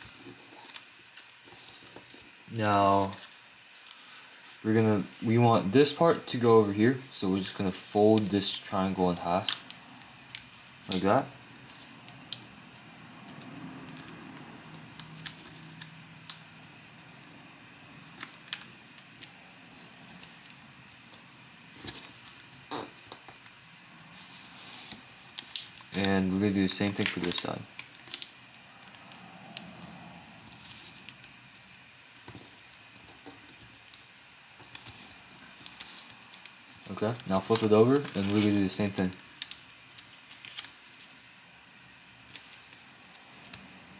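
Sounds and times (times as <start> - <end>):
paper crinkling: 24.1 - 29.2, 30.5 - 41.2.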